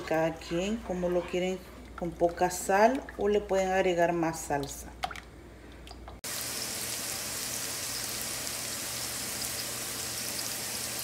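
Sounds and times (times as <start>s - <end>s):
frying in hot oil sizzling: 6.2s - 11.0s.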